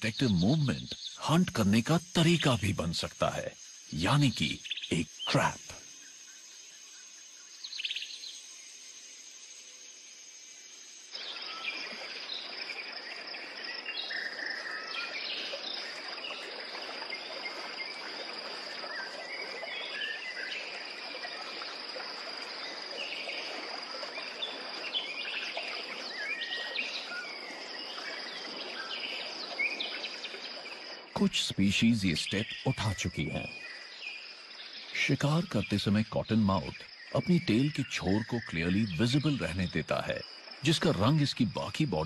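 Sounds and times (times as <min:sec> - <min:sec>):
high insect drone: 0:00.0 - 0:42.0.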